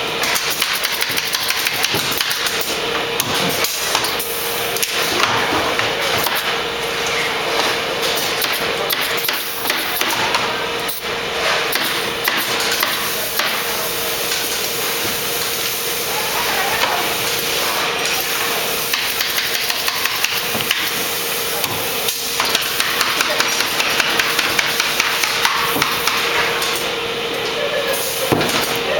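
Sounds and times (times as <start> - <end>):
shop noise hum: 0.0 - 28.9
pneumatic staple guns firing: 0.2 - 4.2, 18.9 - 26.8.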